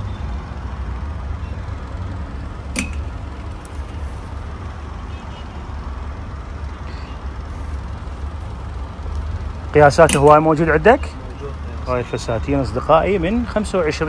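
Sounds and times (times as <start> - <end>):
clothes hangers sliding on rack: 10.0 - 10.4.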